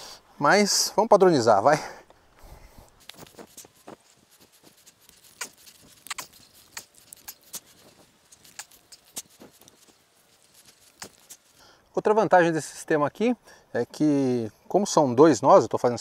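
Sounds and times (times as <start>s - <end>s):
cord scratching and clicking: 3.0s - 11.6s.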